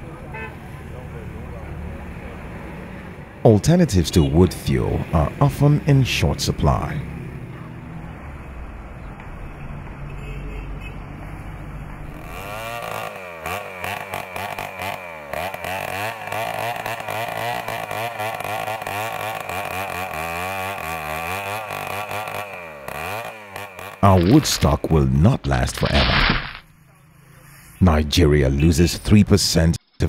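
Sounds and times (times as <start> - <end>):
chainsaw cutting into wood: 12.2 - 24.8, 25.8 - 26.6.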